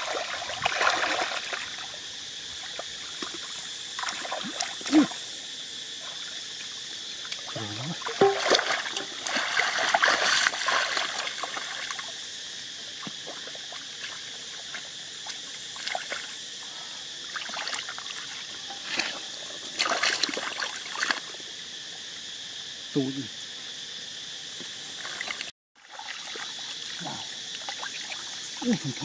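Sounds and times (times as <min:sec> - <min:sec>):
hands splashing in muddy water: 0:00.0 - 0:01.8, 0:07.7 - 0:12.0, 0:19.8 - 0:21.2.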